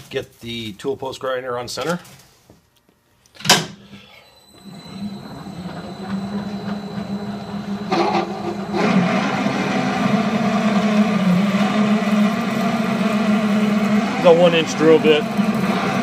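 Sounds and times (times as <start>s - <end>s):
metal lathe spinning: 4.4s - 16.0s
drill cutting into steel: 4.5s - 16.0s.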